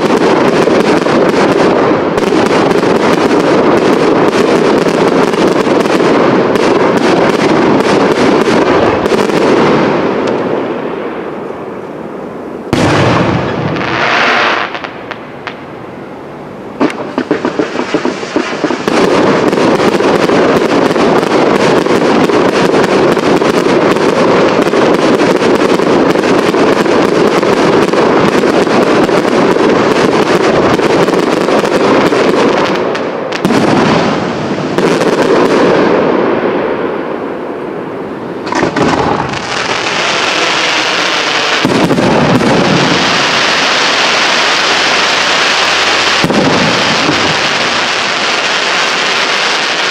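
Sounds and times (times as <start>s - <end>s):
fireworks bursting and crackling: 0.0s - 49.9s
loud firework bang: 12.7s - 15.6s, 16.8s - 26.9s, 38.4s - 43.6s, 46.1s - 48.2s
firework hiss: 16.8s - 36.1s, 38.4s - 49.9s.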